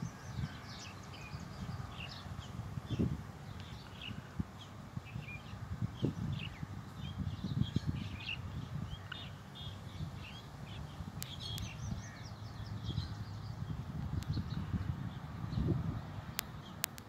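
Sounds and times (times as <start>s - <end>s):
small birds chirping: 0.0s - 17.0s
sharp clicks: 16.4s - 17.0s.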